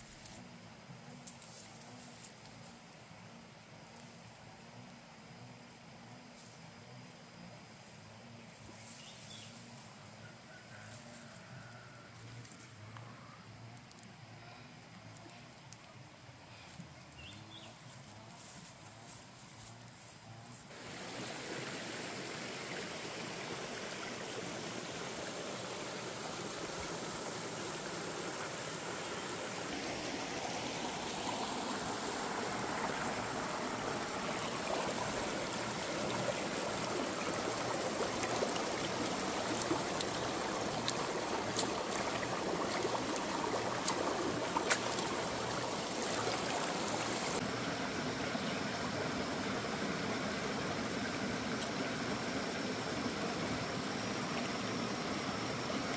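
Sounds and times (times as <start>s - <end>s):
stream flowing over stones: 20.7s - 55.9s.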